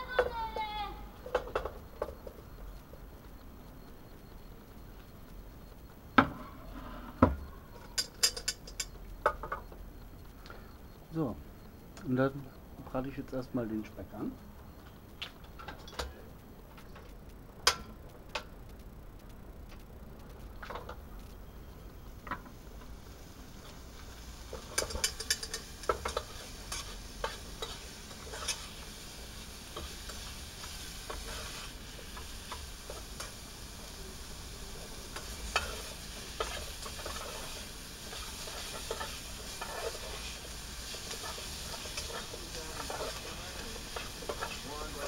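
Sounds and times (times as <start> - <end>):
bacon sizzling in a pot: 0.0 - 45.0
utensil scraping a pot: 35.2 - 45.0.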